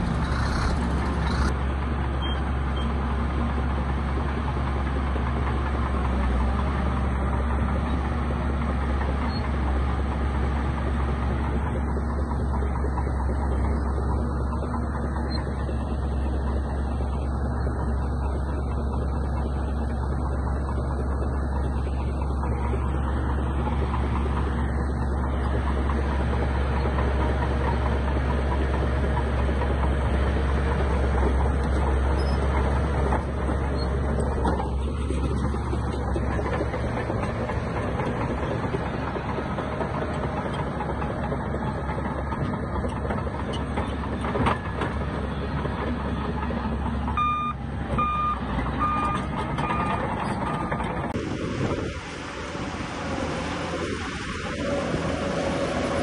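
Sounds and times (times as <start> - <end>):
diesel machinery engine rumble: 0.0 - 56.0
reversing alarm beeping: 47.2 - 50.9.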